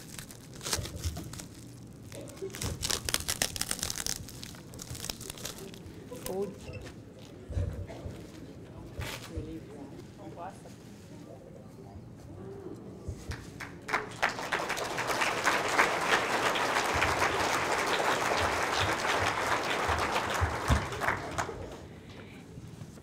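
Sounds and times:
audience applauding: 13.6s - 21.9s.

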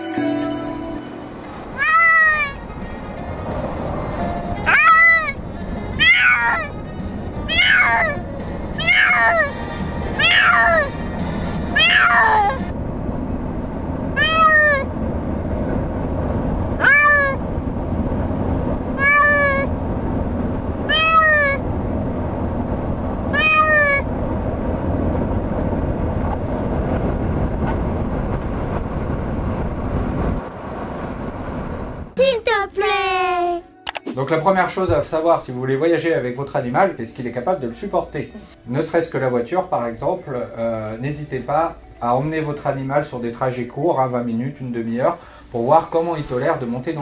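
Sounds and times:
cat meowing: 1.8s - 2.6s, 4.6s - 5.4s, 6.0s - 6.8s, 7.4s - 8.2s, 8.8s - 9.6s, 10.2s - 11.0s, 11.7s - 12.7s, 14.2s - 14.9s, 16.8s - 17.4s, 19.0s - 19.7s, 20.9s - 21.6s, 23.3s - 24.0s.

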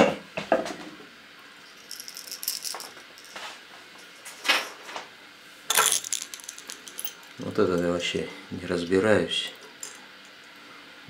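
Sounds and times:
fishing lure hooks rattling: 1.7s - 3.4s, 5.7s - 7.8s.

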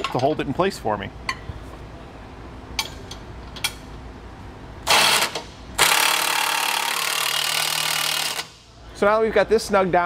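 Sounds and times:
impact wrench hammering: 4.9s - 8.6s.

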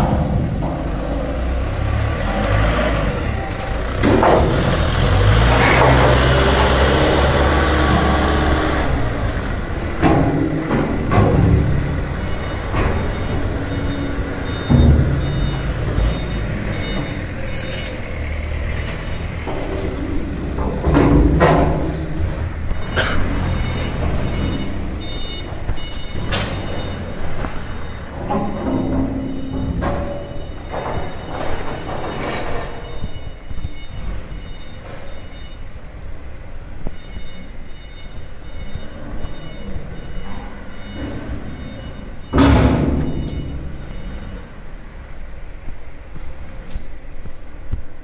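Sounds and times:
knocks and clanks: 0.0s - 35.6s, 38.5s - 44.5s
forklift engine running: 0.0s - 45.7s
repeating high beep: 12.3s - 17.9s.

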